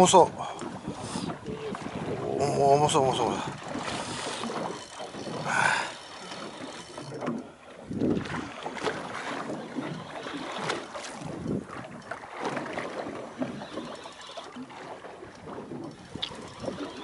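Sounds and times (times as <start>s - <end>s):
wind gusting on microphone: 0.0s - 5.5s, 7.9s - 8.5s.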